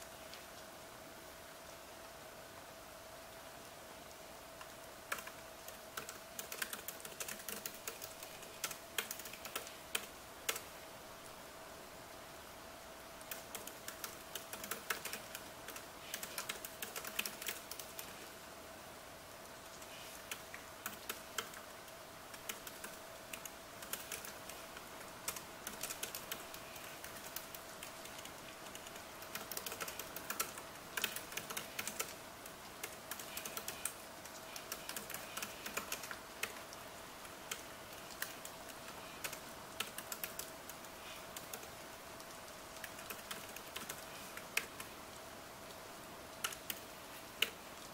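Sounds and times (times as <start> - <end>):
faint steady hum: 0.0 - 47.9
steady hiss: 0.0 - 47.9
laptop keyboard typing: 5.1 - 10.7, 13.2 - 18.4, 19.8 - 44.9, 46.4 - 47.6.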